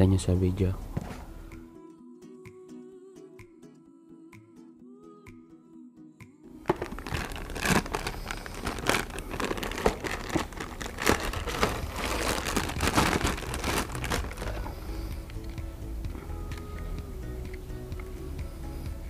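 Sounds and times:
plastic bag crinkling: 6.6s - 15.0s.

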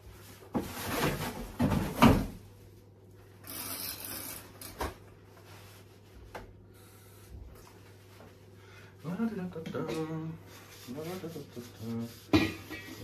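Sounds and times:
knocks and thumps: 0.5s - 2.4s.

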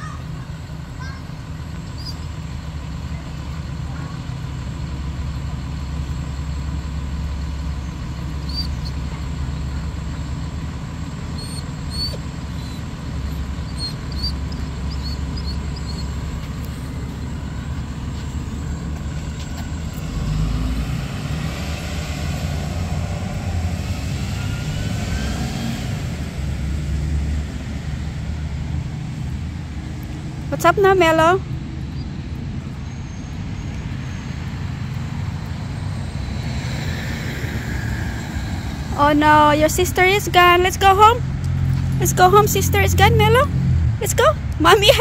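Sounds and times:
bus engine idling: 0.0s - 45.0s
faint high squeaks: 1.8s - 2.3s, 11.3s - 17.0s.

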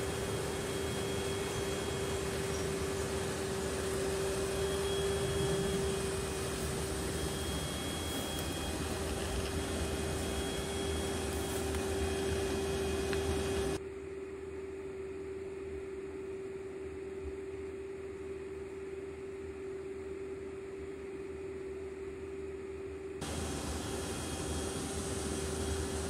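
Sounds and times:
mechanical hum tone: 0.0s - 26.0s
even hiss: 23.2s - 26.0s.

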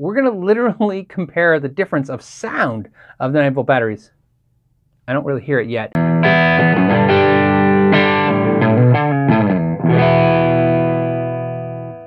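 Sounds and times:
distorted electric guitar chords: 6.0s - 12.0s.

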